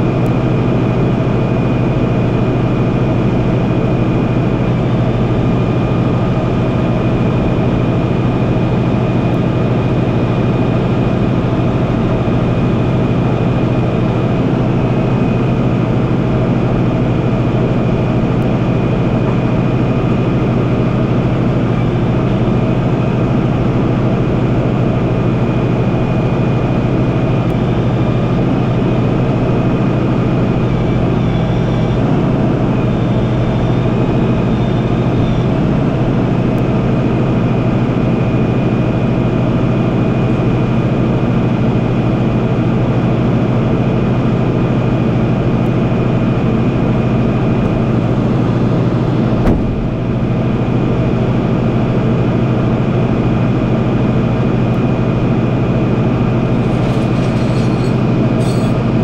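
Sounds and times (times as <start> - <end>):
diesel truck engine running: 0.0 - 59.0
brief knock: 49.4 - 49.9
faint high whine: 54.2 - 59.0.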